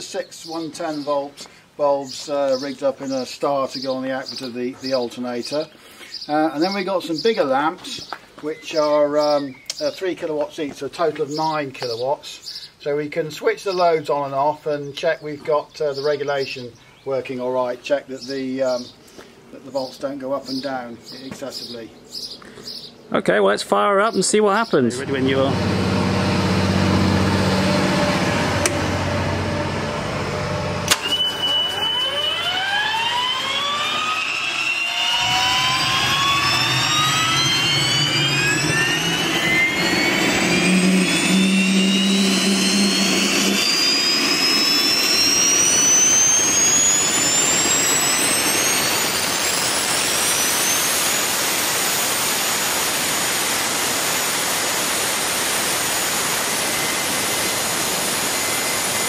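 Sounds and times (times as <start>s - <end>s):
gas turbine whine spooling up: 23.8s - 59.0s
low hum: 25.0s - 59.0s.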